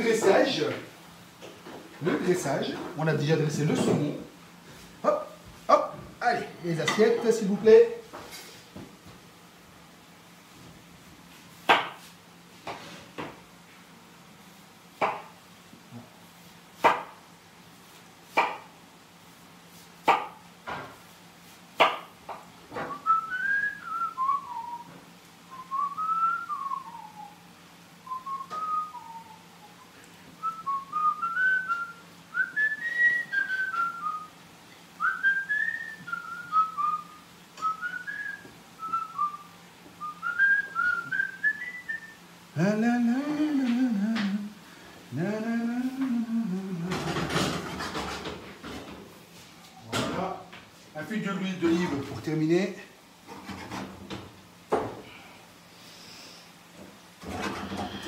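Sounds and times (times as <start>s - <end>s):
knife chopping on cutting board: 16.8s - 17.1s
man whistling a tune: 22.9s - 27.4s, 28.0s - 34.3s, 35.0s - 42.2s.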